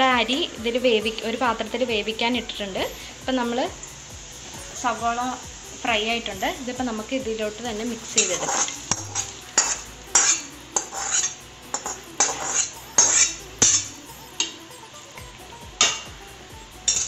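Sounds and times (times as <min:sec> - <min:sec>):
metal spoon scraping a pan: 0:07.7 - 0:14.7, 0:15.8 - 0:16.2
spoon stirring in a pot: 0:08.0 - 0:14.6.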